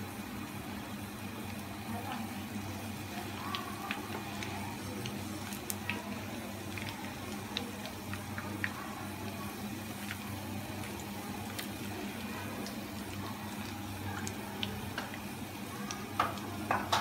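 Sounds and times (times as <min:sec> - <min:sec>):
oil sizzling in frying pan: 0:00.0 - 0:17.0
oil pops and crackles: 0:03.2 - 0:11.9, 0:12.6 - 0:17.0.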